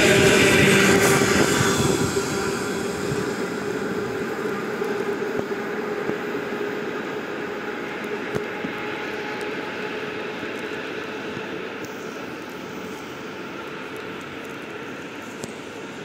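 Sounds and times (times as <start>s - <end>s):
train running noise: 0.0s - 11.7s
steady hum: 0.0s - 16.0s.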